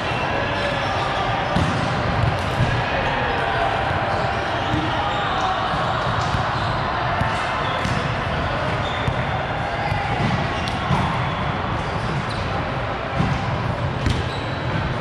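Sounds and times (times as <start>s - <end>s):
balls bouncing on gym floor: 1.5s - 2.8s, 5.7s - 12.5s, 13.1s - 15.0s.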